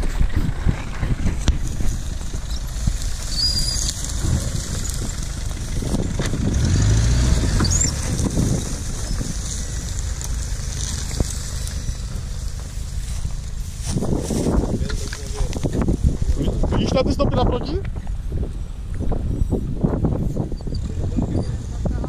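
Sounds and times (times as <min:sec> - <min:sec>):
wind buffeting microphone: 0:00.0 - 0:22.0
truck engine passing: 0:01.7 - 0:16.7.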